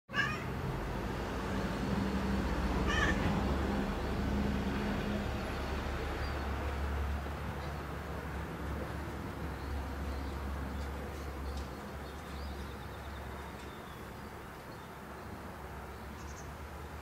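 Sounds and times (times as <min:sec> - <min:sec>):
cat meowing: 0:00.1 - 0:00.5, 0:02.8 - 0:03.4.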